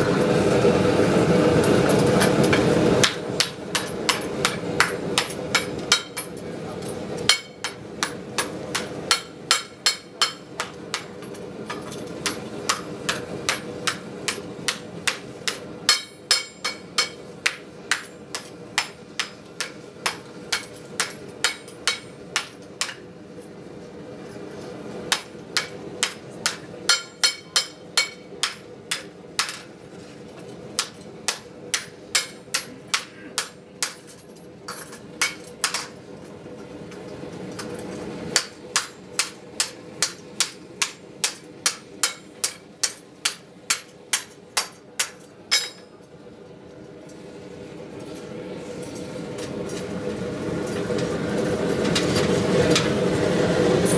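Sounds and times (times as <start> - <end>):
steady hum: 0.0 - 53.9
hammer striking hot steel: 1.6 - 23.1, 25.1 - 29.8, 30.4 - 36.0, 37.5 - 46.0.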